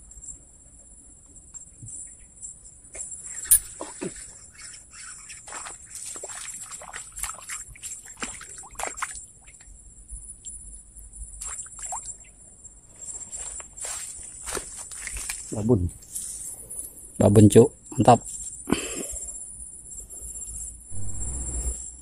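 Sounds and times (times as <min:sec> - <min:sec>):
faint water sloshing: 0:03.3 - 0:09.7, 0:11.3 - 0:16.8
high-pitched insect buzz: 0:20.1 - 0:22.0.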